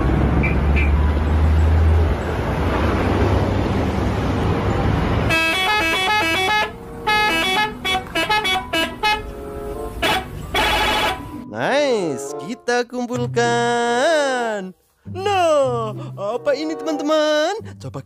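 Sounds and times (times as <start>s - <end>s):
bus engine and road rumble: 0.0s - 11.4s
multi-tone musical horn tooting: 5.3s - 11.4s.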